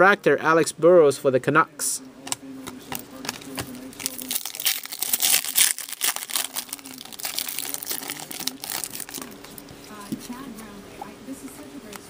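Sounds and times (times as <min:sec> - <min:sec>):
foil wrapper tearing and crinkling: 0:04.0 - 0:09.6.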